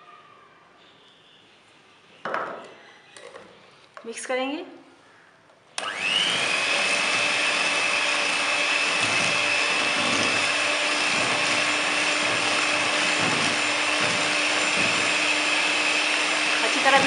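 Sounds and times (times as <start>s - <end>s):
electric hand mixer whirring: 5.8s - 17.0s.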